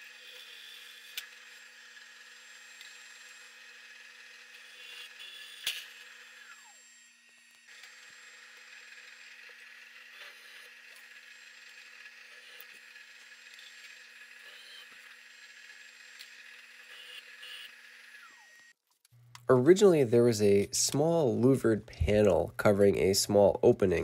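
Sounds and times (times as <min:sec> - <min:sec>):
drill press drilling metal: 0:00.0 - 0:18.7.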